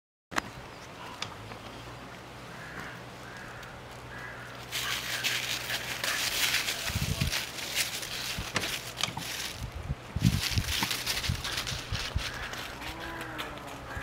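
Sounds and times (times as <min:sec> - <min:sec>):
crackling rustle: 0:00.4 - 0:14.0
crow cawing faintly: 0:02.4 - 0:06.9, 0:11.4 - 0:14.0.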